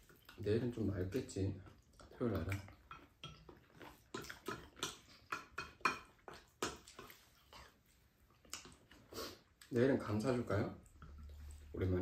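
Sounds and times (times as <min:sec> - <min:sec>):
people chewing and lip smacks: 0:00.0 - 0:12.0
spoons tapping ceramic bowls: 0:04.5 - 0:06.8.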